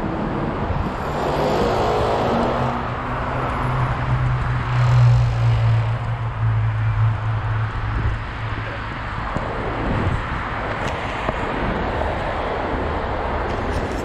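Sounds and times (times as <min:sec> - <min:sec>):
city traffic: 0:00.0 - 0:14.0
scooter wheels rolling on paving: 0:07.7 - 0:14.0.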